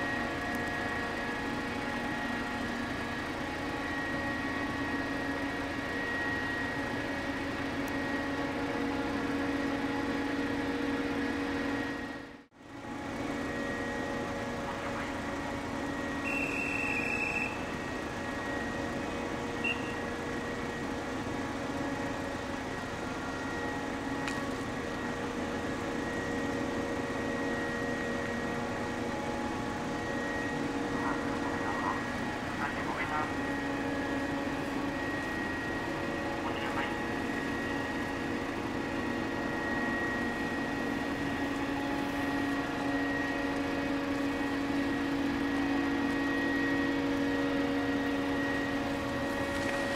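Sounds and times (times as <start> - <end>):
ship machinery hum with held tones: 0.0 - 49.9
short high beep: 19.6 - 20.1.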